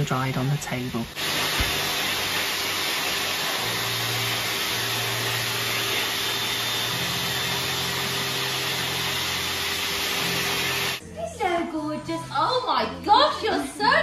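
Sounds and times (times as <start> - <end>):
dryer blowing air: 0.0 - 11.0
motor hum: 1.2 - 11.0.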